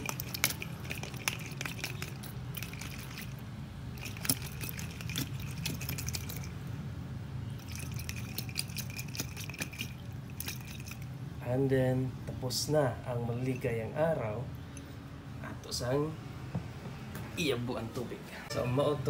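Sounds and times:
water sloshing: 0.0 - 3.4, 4.0 - 6.6, 7.6 - 11.1
egg knocking against glass: 7.6 - 11.0.

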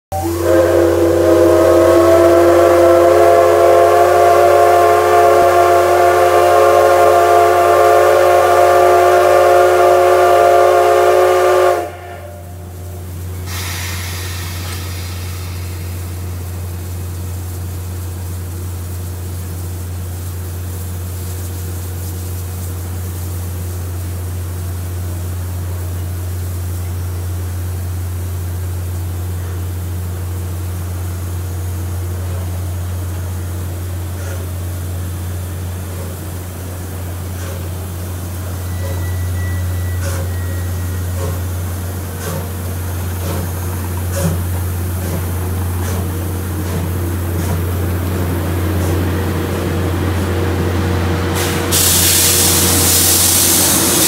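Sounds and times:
steam locomotive whistle blast: 0.1 - 16.5, 37.3 - 43.5, 48.5 - 54.0
steam venting hiss: 0.2 - 54.0.

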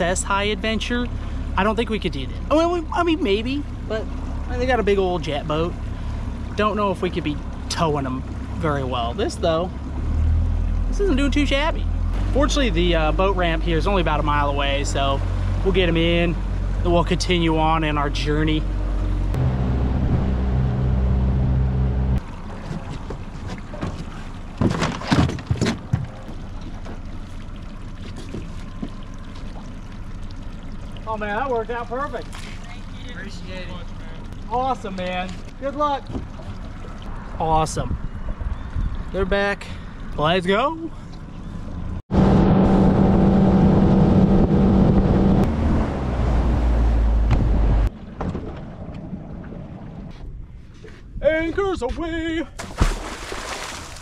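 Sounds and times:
water sloshing against hull: 0.0 - 12.3, 22.2 - 39.2, 52.5 - 54.0
outboard motor running: 0.0 - 37.4
wind and water rushing: 33.2 - 40.7, 52.6 - 54.0.

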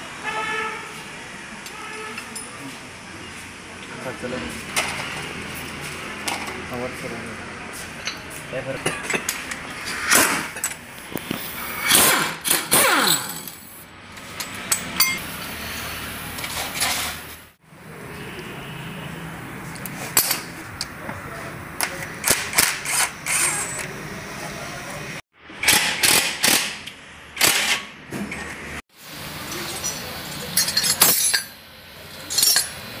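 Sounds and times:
metal tools clinking: 8.0 - 10.8, 12.5 - 15.3, 29.7 - 31.6, 32.2 - 32.9.

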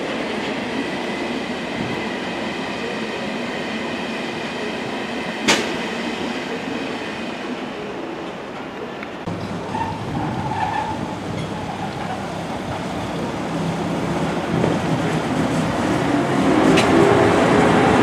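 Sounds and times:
electric locomotive hum: 0.0 - 18.0.

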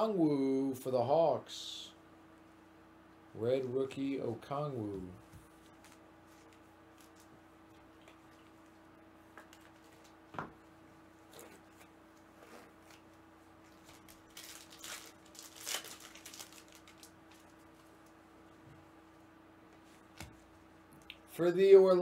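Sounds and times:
faint steady hum: 0.0 - 22.0
foil wrapper crinkling and tearing: 13.6 - 17.9.

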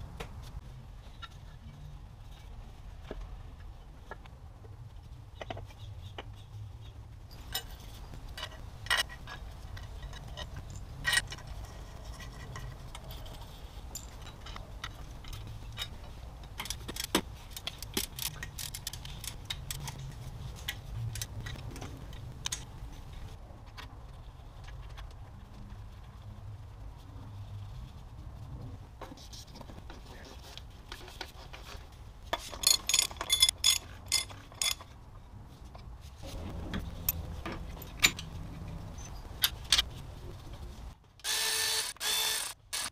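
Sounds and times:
engine parts clicking and clinking: 7.3 - 22.7, 32.3 - 35.0, 35.8 - 40.0.

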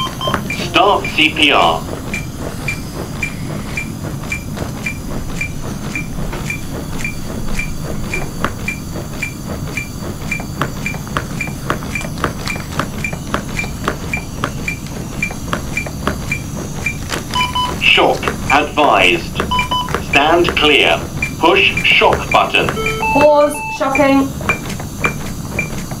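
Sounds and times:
sharp clicks from chest compressions: 0.2 - 22.8, 24.0 - 26.0
metronome beeping: 17.4 - 17.8, 19.5 - 20.3, 21.7 - 24.3.

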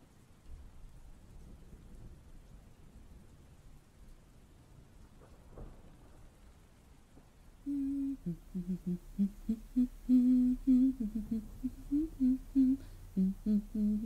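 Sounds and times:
woman humming: 7.7 - 14.0.

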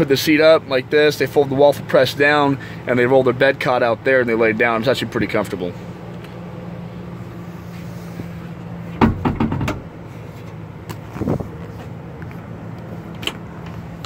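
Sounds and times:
low hum in car cab: 0.0 - 14.0
knock: 9.0 - 9.8
plastic clunks and rattles: 9.0 - 9.9.

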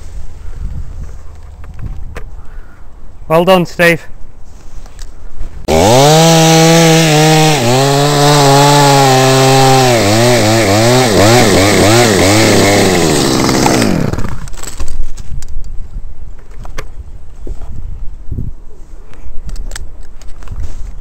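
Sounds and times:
chainsaw revving: 5.7 - 14.5.

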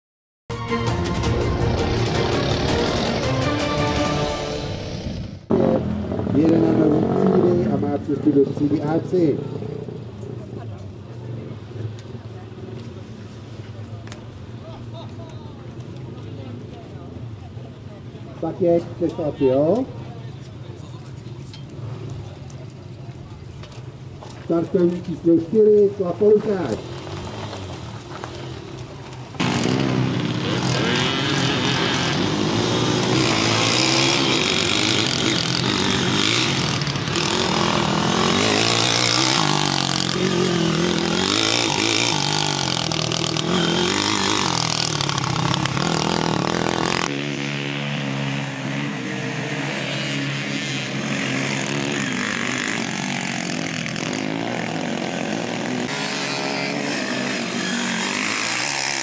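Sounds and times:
quad bike engine revving: 1.6 - 3.6, 4.5 - 10.6, 25.3 - 59.0.

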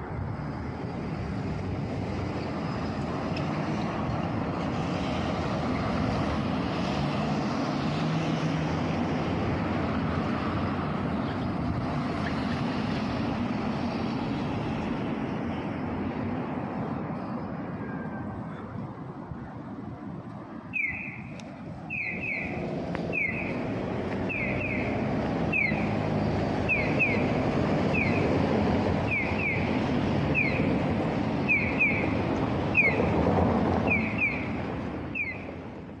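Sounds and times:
street traffic: 0.0 - 36.0
crossing signal bird chirps: 20.7 - 26.0, 26.6 - 28.3, 29.0 - 30.8, 31.4 - 33.2, 33.8 - 35.5.

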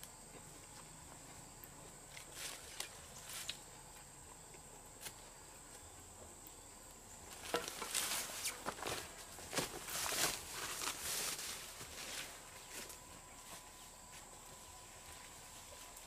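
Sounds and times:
faint high-pitched whine: 0.0 - 16.0
footsteps rustling on dry leaves: 7.3 - 16.0.

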